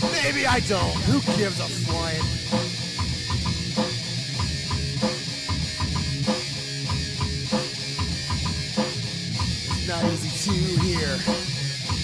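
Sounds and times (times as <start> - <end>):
person singing: 0.0 - 2.4, 9.7 - 11.6
rock music with guitar: 0.0 - 12.0.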